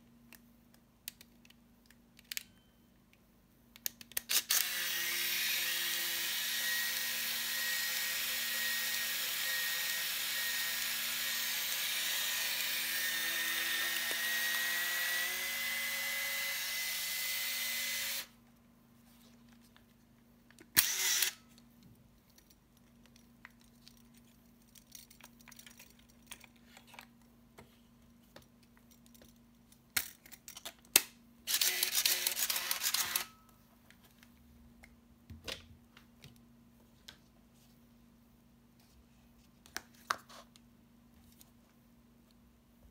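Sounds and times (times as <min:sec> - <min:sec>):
shutter click and whir: 0:04.1 - 0:18.3, 0:20.7 - 0:21.4, 0:31.5 - 0:33.4
camera motor whirring: 0:04.3 - 0:18.3, 0:20.8 - 0:21.4, 0:31.5 - 0:33.3.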